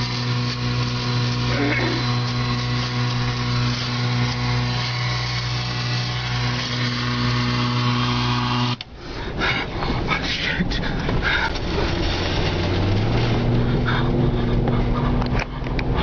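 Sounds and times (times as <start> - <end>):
low electrical buzz: 0.0 - 8.8
rough rushing noise: 0.0 - 16.0.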